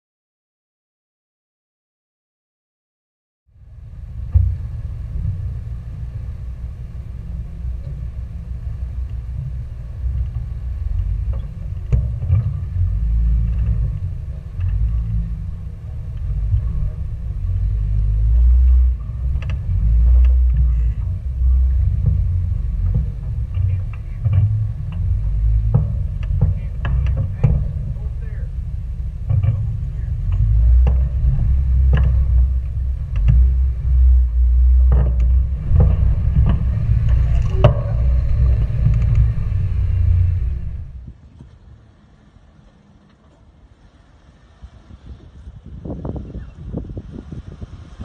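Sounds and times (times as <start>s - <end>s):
engine rumble crawling over rock: 3.5s - 48.0s
sharp knocks: 19.1s - 40.9s.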